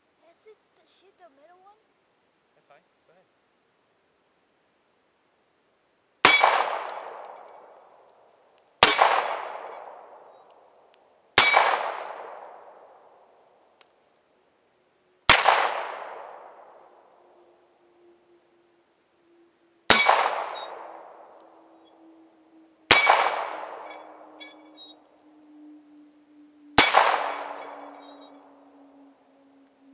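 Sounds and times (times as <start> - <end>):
echoing handgun shots: 6.2 - 7.8, 8.8 - 10.3, 11.4 - 13.0, 15.3 - 16.9, 19.9 - 22.0, 22.9 - 25.0, 26.8 - 28.8.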